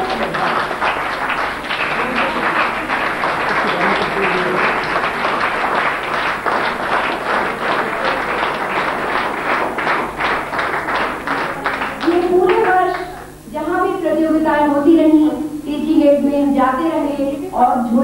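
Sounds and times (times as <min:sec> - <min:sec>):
audience applauding: 0:00.0 - 0:13.4.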